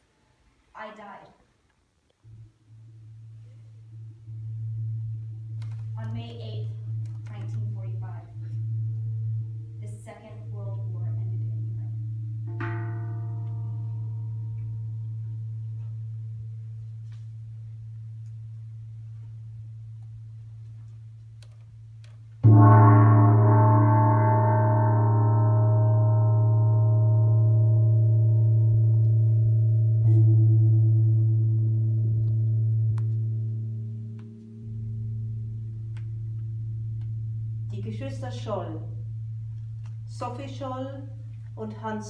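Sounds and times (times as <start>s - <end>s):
steady low hum: 1.9s - 42.0s
deep struck metal gong ringing: 11.3s - 16.6s, 22.4s - 37.9s
bell ringing: 22.4s - 28.1s.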